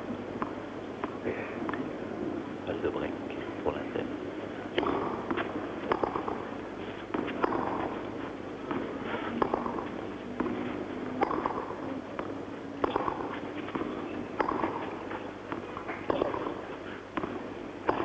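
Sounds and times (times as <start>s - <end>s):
steady background noise: 0.0s - 18.0s
racket hitting tennis ball: 4.7s - 18.0s.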